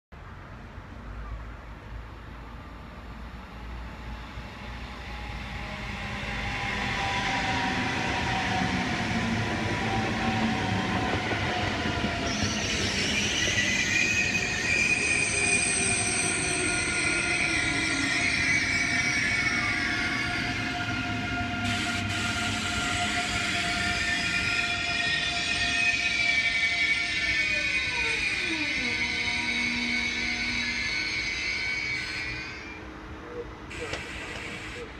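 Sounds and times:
electric train whining: 2.5s - 34.9s
wheel and brake squeal: 9.8s - 32.8s.

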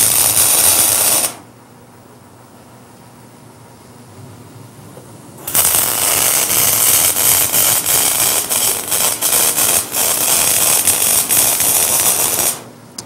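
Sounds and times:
welding arc crackle: 0.0s - 1.4s, 5.4s - 12.7s.

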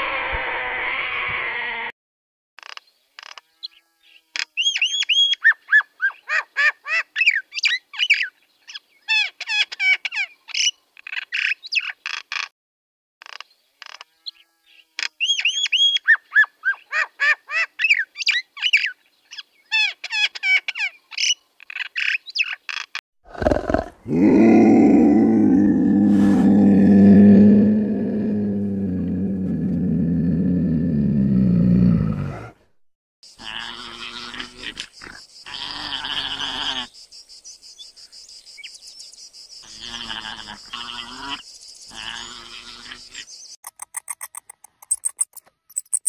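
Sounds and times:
big cat growling: 23.3s - 32.6s
birds chattering and chirping: 33.3s - 46.0s.

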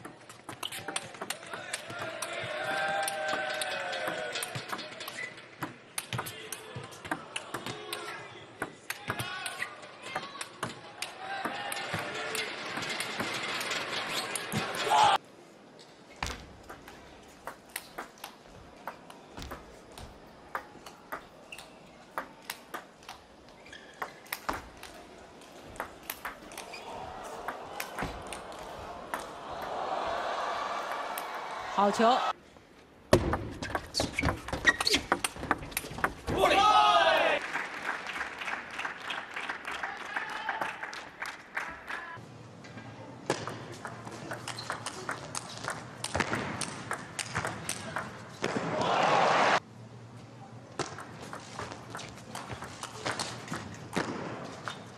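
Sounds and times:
crowd noise: 1.4s - 32.4s, 41.4s - 54.9s
crowd applauding: 26.8s - 32.3s, 37.0s - 42.2s.

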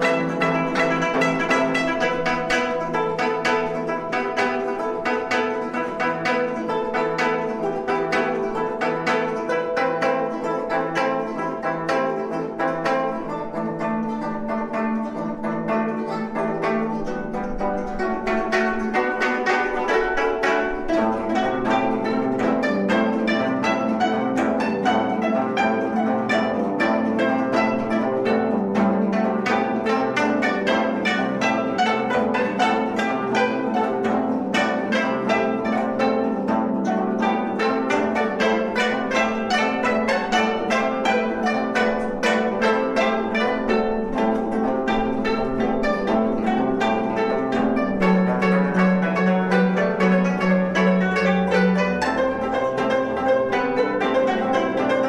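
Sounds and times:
plucked zither ensemble: 0.0s - 55.0s.

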